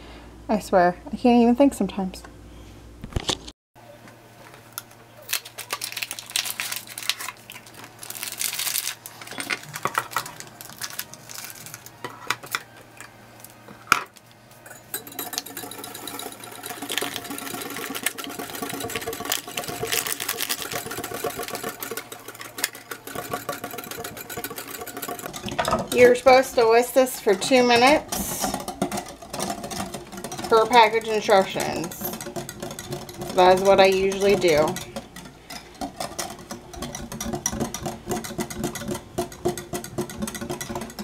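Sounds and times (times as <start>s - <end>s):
whisk clicking against glass: 14.7s - 26.4s, 27.4s - 41.0s.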